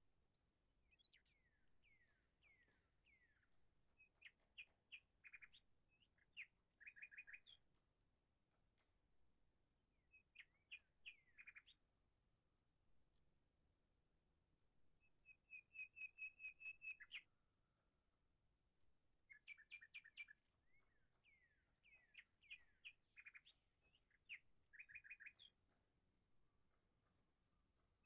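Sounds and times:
songbird chirping: 0:00.2 - 0:08.0, 0:09.6 - 0:12.0, 0:14.9 - 0:17.5, 0:18.9 - 0:28.0.

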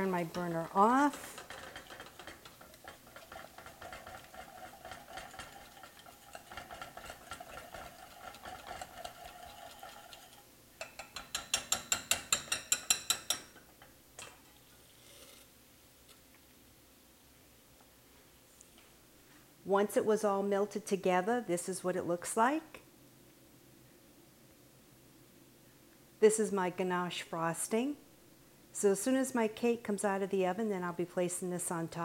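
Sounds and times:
whisk clicking against glass bowl: 0:00.2 - 0:13.6.

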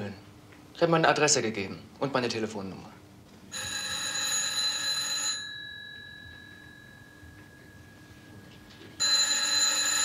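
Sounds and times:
telephone bell ringing: 0:03.5 - 0:10.0.

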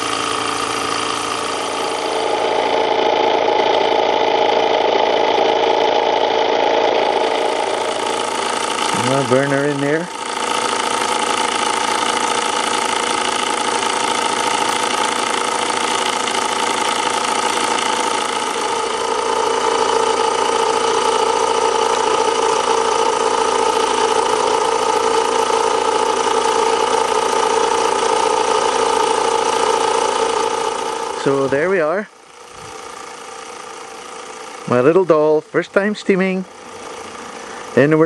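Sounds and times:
toy steam engine whirring: 0:00.0 - 0:38.0.

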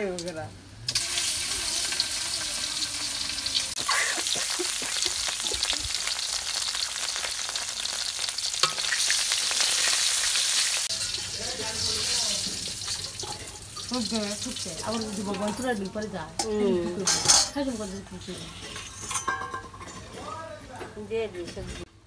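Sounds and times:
fish sizzling in oil: 0:00.0 - 0:18.7.

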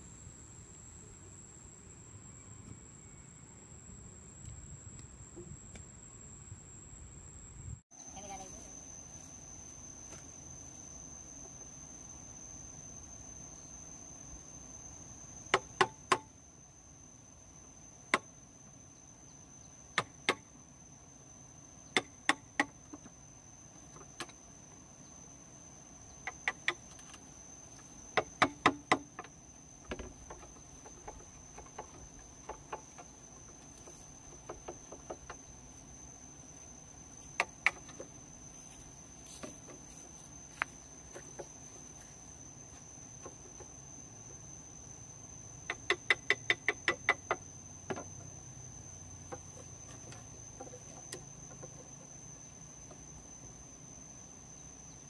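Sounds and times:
high-pitched insect drone: 0:00.0 - 0:55.0
hand tool knocking on bamboo: 0:28.2 - 0:29.3, 0:45.7 - 0:48.1.

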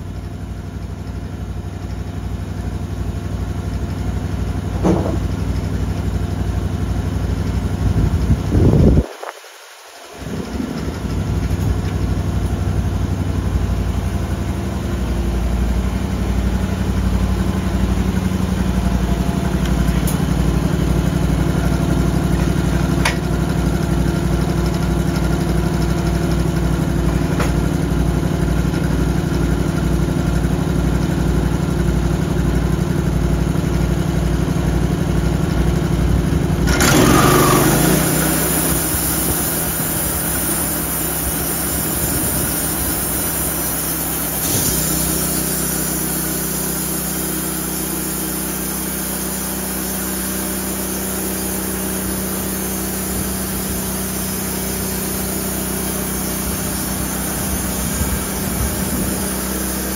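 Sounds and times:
sawmill engine drone: 0:00.0 - 0:59.9
loud hissing rush: 0:07.7 - 0:28.0, 0:36.8 - 0:59.9.

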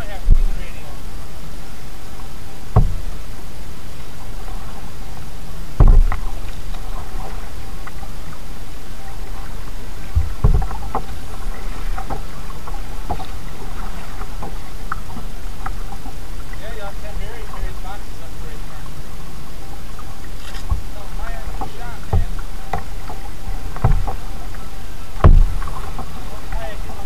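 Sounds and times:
steady low rumble: 0:00.1 - 0:27.0
paddle knocking on hull: 0:02.7 - 0:03.2, 0:05.8 - 0:08.4, 0:09.0 - 0:18.5, 0:20.0 - 0:27.0.

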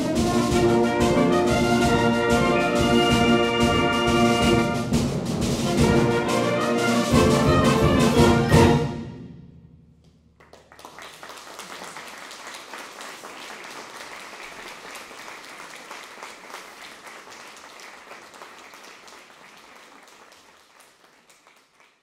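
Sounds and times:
audience applauding: 0:10.4 - 0:22.0.

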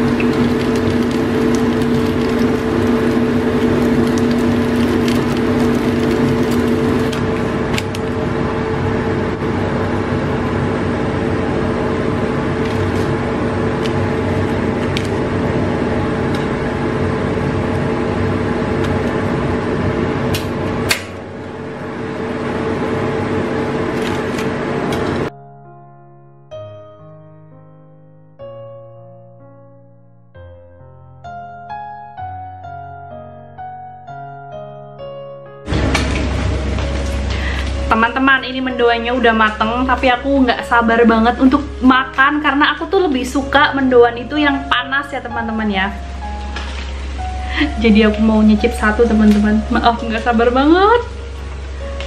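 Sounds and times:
food deep-frying in oil: 0:00.0 - 0:25.3, 0:44.4 - 0:52.0
low hum: 0:00.0 - 0:25.4, 0:35.7 - 0:52.0
soft piano music: 0:00.0 - 0:52.0.

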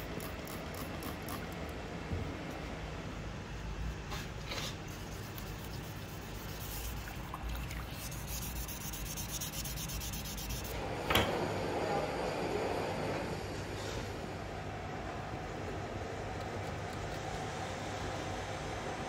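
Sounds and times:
sanding a knife by hand: 0:04.7 - 0:10.8.

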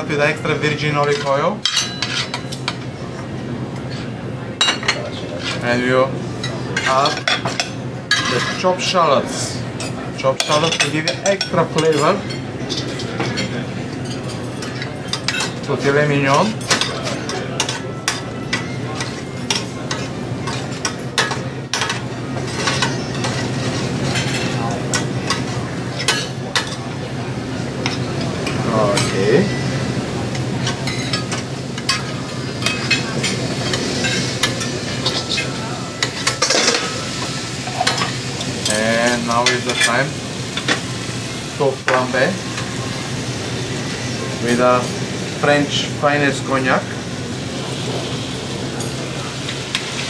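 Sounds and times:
utensils clinking and scraping pan: 0:00.8 - 0:02.9, 0:03.9 - 0:05.8, 0:06.4 - 0:26.9, 0:27.8 - 0:42.8
fork and spoon scraping a pan: 0:30.7 - 0:37.0
meat sizzling in a frying pan: 0:30.9 - 0:50.0.

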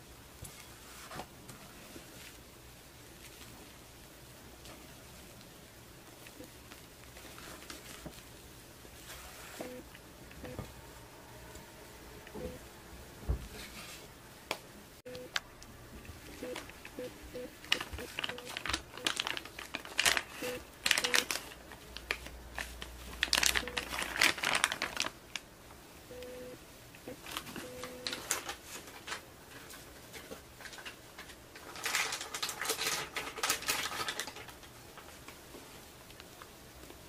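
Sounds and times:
plastic piping bag crinkling: 0:04.7 - 0:09.6, 0:16.2 - 0:25.5, 0:27.2 - 0:35.4.

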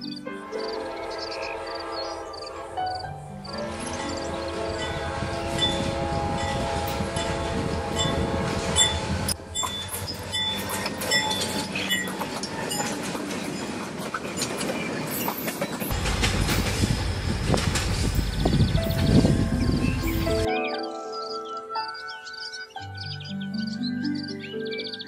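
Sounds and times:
diesel locomotive engine running: 0:03.2 - 0:20.5
train wheels clacking over rails: 0:04.8 - 0:19.4.

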